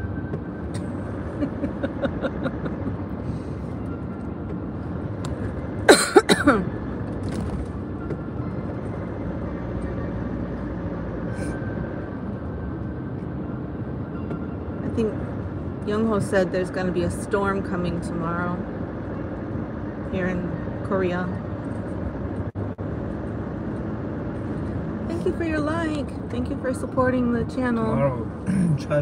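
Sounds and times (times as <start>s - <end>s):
car cabin road and engine noise: 0.0s - 29.0s
person coughing: 5.9s - 6.7s.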